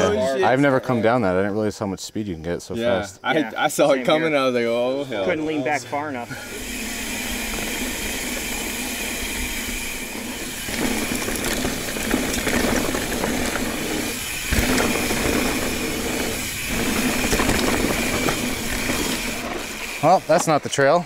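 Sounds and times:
bike tyres on dirt trail: 6.2 - 21.0
bike rattles and clicks: 6.5 - 21.0.

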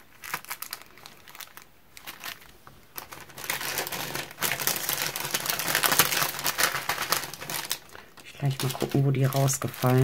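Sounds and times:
plastic bags crinkling: 0.0 - 10.0.

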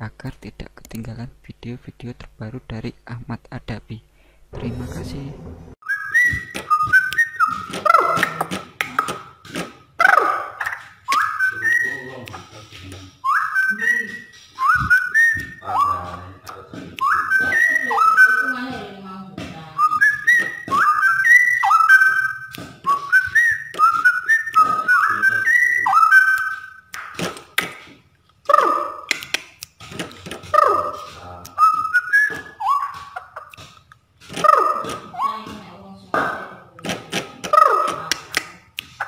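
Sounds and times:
bird singing whistled notes: 5.8 - 8.1, 11.0 - 16.4, 17.0 - 18.7, 19.8 - 26.9, 30.6 - 33.1
bird downward-sliding calls: 13.2 - 16.4, 30.5 - 33.5.

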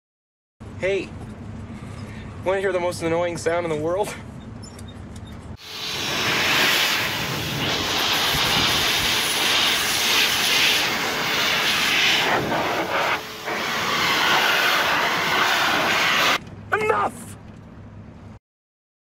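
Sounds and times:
loud rushing noise: 5.6 - 16.4.

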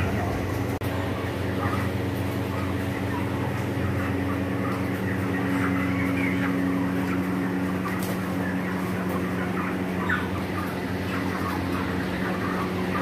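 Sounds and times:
chickens clucking and squawking: 0.0 - 13.0
low mechanical hum: 0.0 - 13.0.

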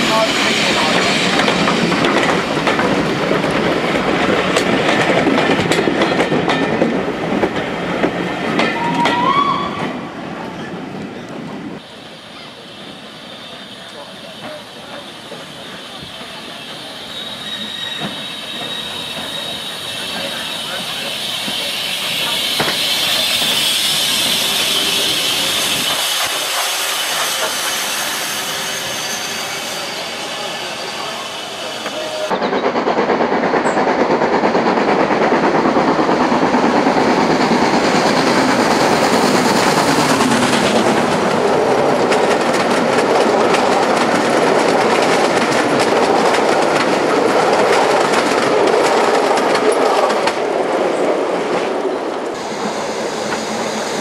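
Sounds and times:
steam locomotive hissing: 0.0 - 5.7, 11.8 - 54.0
train wheels clicking over rail joints: 0.1 - 9.2, 13.9 - 29.0, 31.8 - 54.0
high wheel squeal: 11.9 - 32.6.

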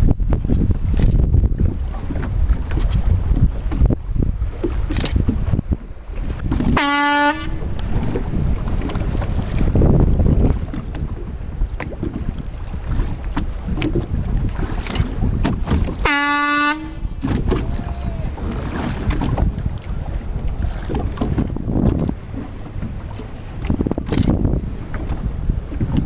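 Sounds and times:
water rushing around boat: 0.0 - 26.0
wind buffeting microphone: 0.0 - 26.0
short horn blast: 6.8 - 7.6, 16.0 - 17.1.

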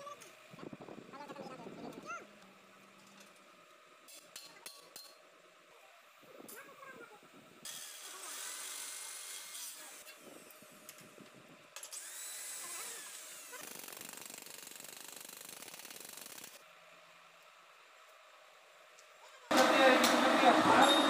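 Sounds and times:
electric hand drill running: 7.6 - 10.7, 11.8 - 16.6.

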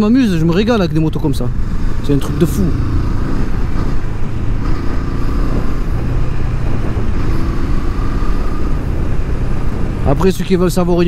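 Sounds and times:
wind and road noise: 0.0 - 11.0
motorcycle engine running: 1.5 - 10.2.

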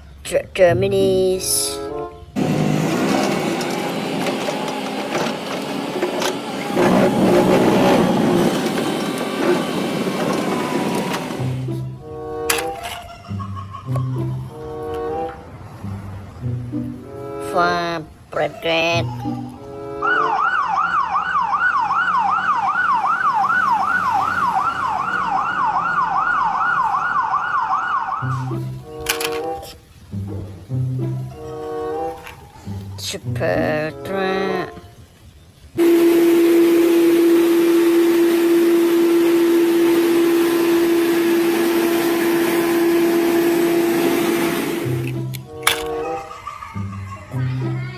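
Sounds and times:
excavator engine under load: 2.4 - 13.1, 35.8 - 46.6
hydraulic ripper rattling: 2.4 - 13.1, 28.8 - 30.7, 35.8 - 46.4.

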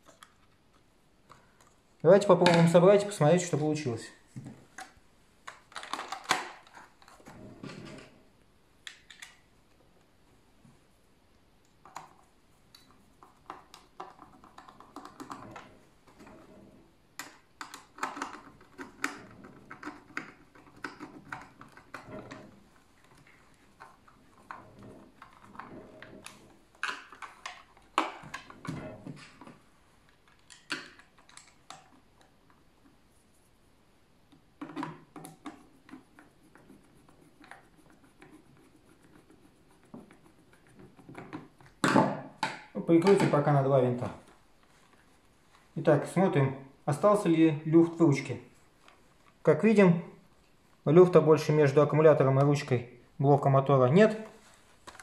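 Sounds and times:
plastic parts clicking and knocking: 4.4 - 8.2, 12.8 - 33.0, 34.3 - 36.3, 40.0 - 43.5.

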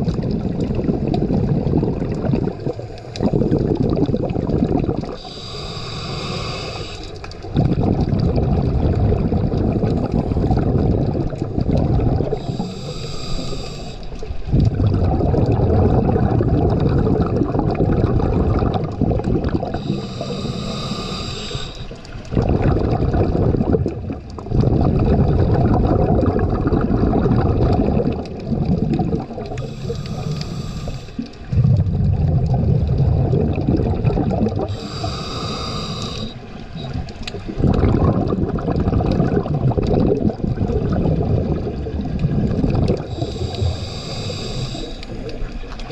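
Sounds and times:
bubbling exhaled air: 0.0 - 45.9
regulator hissing inhale: 5.2 - 7.4, 12.3 - 14.3, 19.7 - 22.2, 29.5 - 31.4, 34.7 - 36.6, 43.0 - 45.6.

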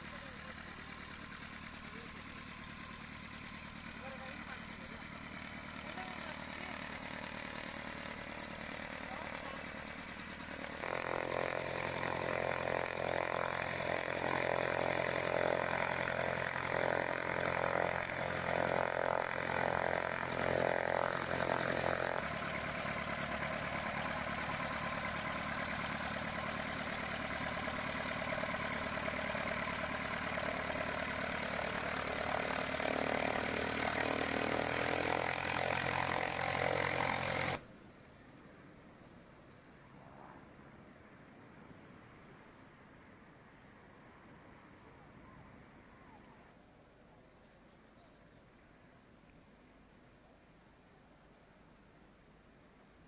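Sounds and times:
light aircraft engine droning: 0.0 - 37.6.

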